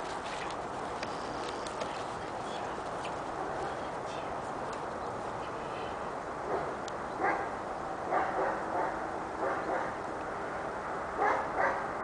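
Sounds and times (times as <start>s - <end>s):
puppy barking: 6.5s - 7.5s, 8.1s - 10.0s, 11.2s - 11.9s.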